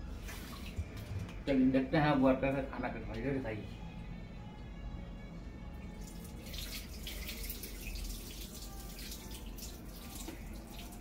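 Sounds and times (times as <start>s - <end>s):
water splashing from a pot: 6.0s - 11.0s.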